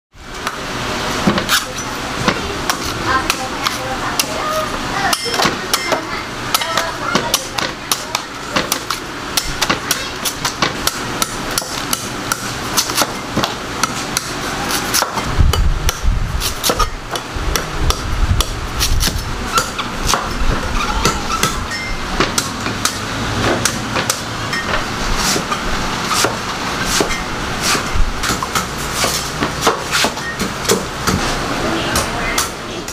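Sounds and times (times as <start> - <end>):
knife chopping coconut husk: 1.2 - 4.4, 5.1 - 20.4, 21.0 - 31.2.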